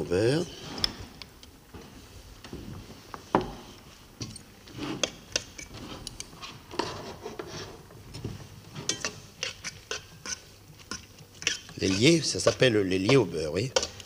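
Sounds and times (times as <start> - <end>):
cutlery scraping metal dish: 8.8 - 13.2.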